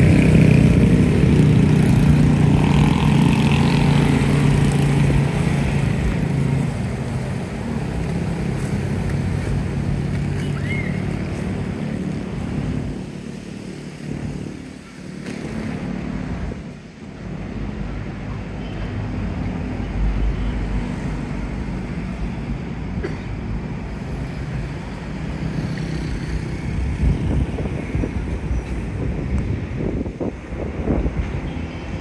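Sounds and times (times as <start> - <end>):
traffic engine rumble: 0.0 - 32.0
wind on microphone: 26.5 - 32.0.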